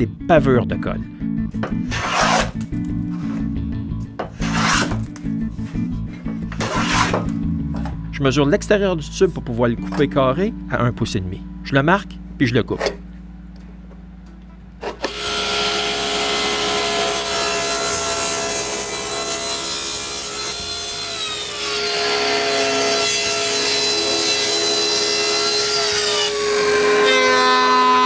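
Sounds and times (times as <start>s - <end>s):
table saw whine: 15.0s - 28.0s.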